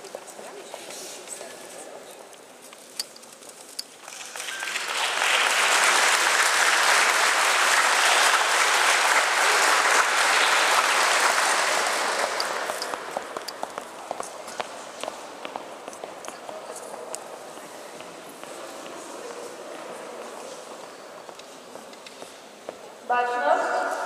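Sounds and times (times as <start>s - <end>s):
audience applauding: 4.0s - 13.8s
footsteps tapping: 12.2s - 19.4s.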